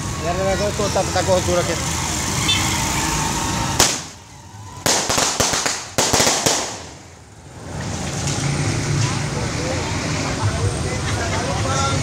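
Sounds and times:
firecrackers cracking and banging: 3.7 - 4.2, 4.8 - 8.4.

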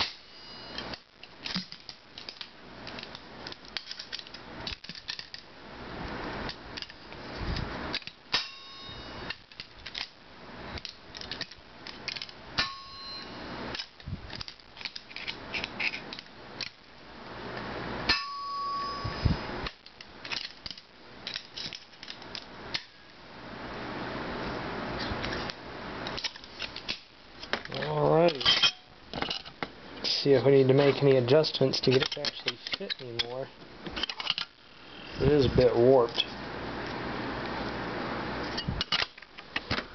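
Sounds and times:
pliers clicking and scraping metal: 0.0 - 5.5, 6.4 - 7.0, 7.6 - 10.2, 10.8 - 16.8, 18.1 - 23.0, 25.2 - 29.7, 30.8 - 34.6, 38.5 - 39.8
ringing metallic clangs: 8.3 - 9.2, 12.6 - 13.5, 18.1 - 19.2, 28.3 - 29.0.

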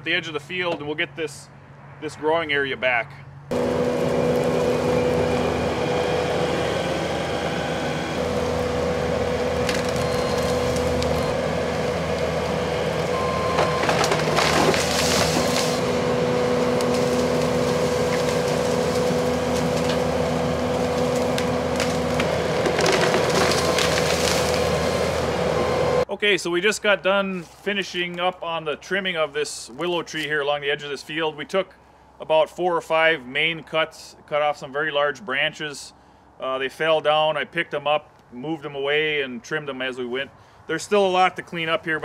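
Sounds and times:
loader engine running with whine: 3.4 - 26.1
wood cracking and splintering: 9.6 - 11.3, 13.5 - 15.9, 16.6 - 25.0.

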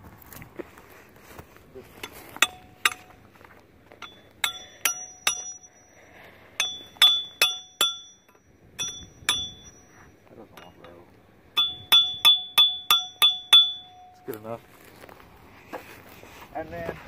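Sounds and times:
hammer striking steel stake: 2.0 - 3.2, 4.0 - 6.0, 6.6 - 11.0, 11.6 - 14.4.

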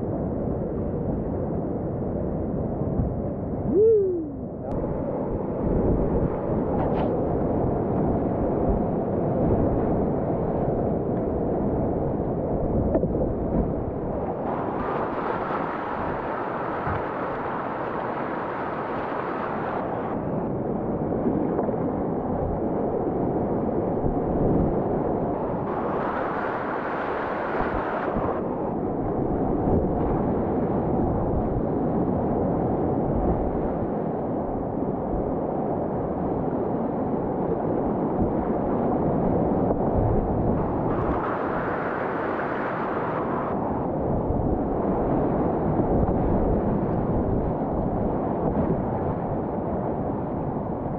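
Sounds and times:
wind buffeting microphone: 0.0 - 50.9
rushing whitewater: 14.4 - 20.2, 25.7 - 28.4, 40.9 - 43.8.

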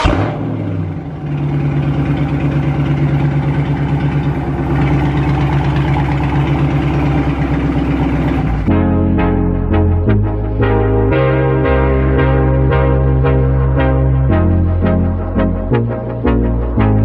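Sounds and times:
car engine idling: 0.0 - 8.8.

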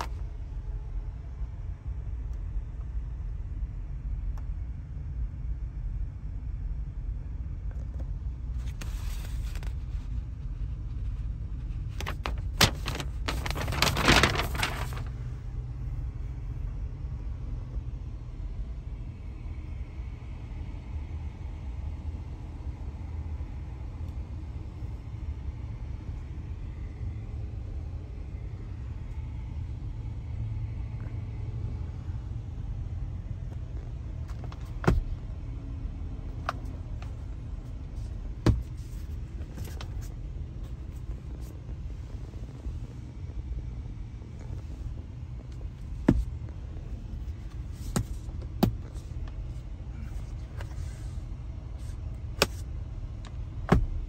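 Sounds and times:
car cabin rumble: 7.6 - 16.8, 30.9 - 54.0
rustling handling noise: 8.6 - 15.3.

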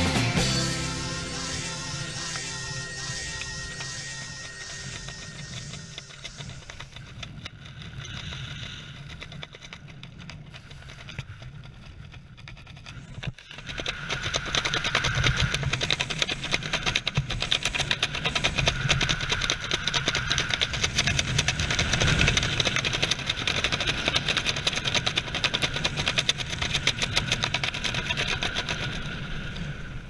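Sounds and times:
rapid fluttering: 0.0 - 30.0.

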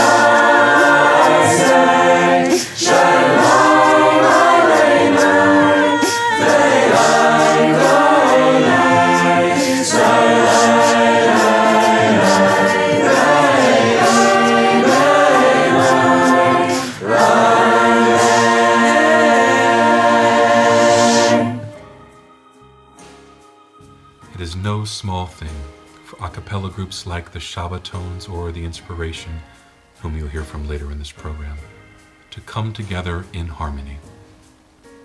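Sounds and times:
choir singing in harmony: 0.0 - 22.5.

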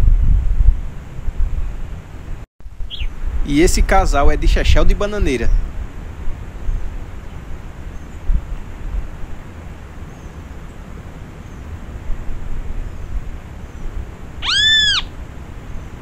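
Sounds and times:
low background hiss: 2.7 - 16.0
faint high chirps: 14.4 - 15.1
rising and falling call: 14.4 - 15.2.

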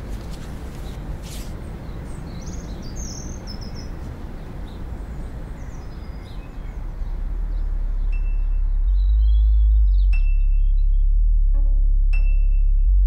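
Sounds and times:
steady low rumble: 4.6 - 13.0
bird chirps: 4.7 - 11.2.

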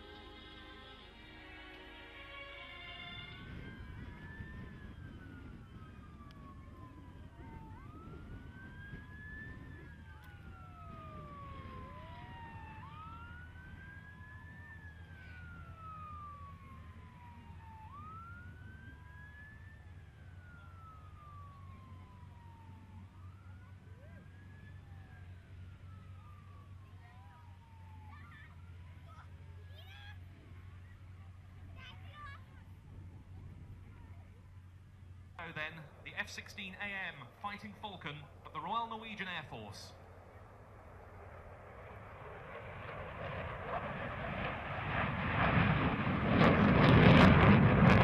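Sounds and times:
fire truck siren wailing: 0.0 - 32.3, 41.9 - 48.0
lower siren wailing: 0.0 - 48.0
low rumble: 40.0 - 48.0.

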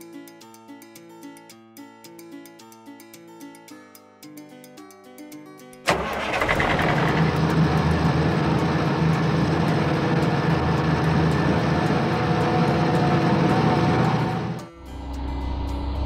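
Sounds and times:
heavy truck engine running: 5.9 - 16.0.

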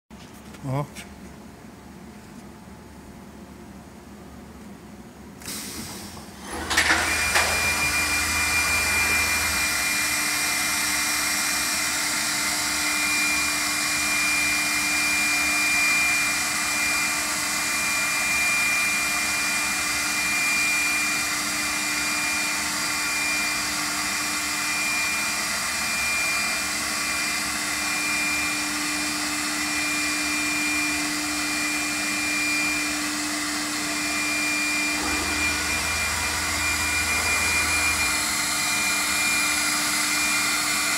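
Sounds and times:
router spindle whining: 6.4 - 40.9.

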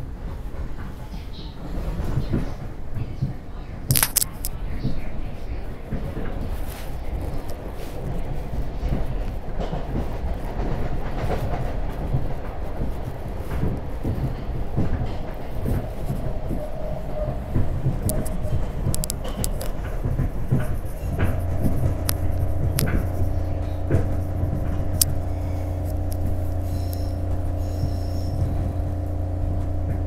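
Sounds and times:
train wheels rumbling on rail: 0.0 - 30.0
sharp clicks and knocks: 3.9 - 5.1, 7.2 - 29.0
steady hum: 15.3 - 30.0.

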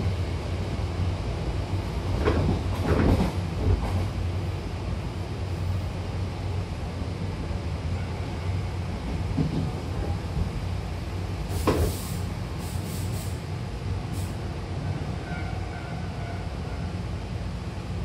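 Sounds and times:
train wheels rumbling on rail: 0.0 - 18.0
short hisses: 11.5 - 13.4.

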